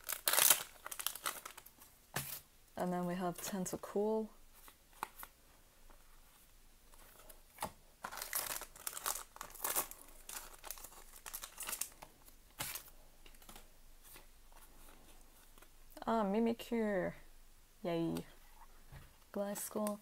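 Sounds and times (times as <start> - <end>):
trading cards rustling and snapping: 0.0 - 2.4, 6.9 - 15.7.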